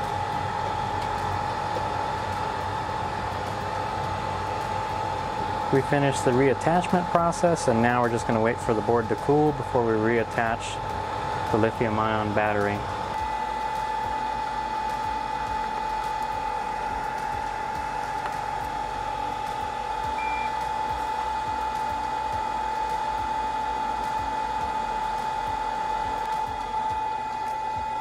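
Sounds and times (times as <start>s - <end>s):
electric blower fan whirring: 0.0s - 28.0s
high beep: 20.2s - 20.6s.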